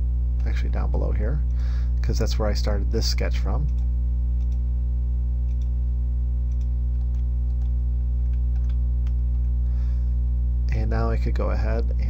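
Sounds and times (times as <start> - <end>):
electrical mains hum: 0.0 - 12.0
computer mouse clicks: 3.7 - 4.6, 5.5 - 5.7, 6.5 - 9.5.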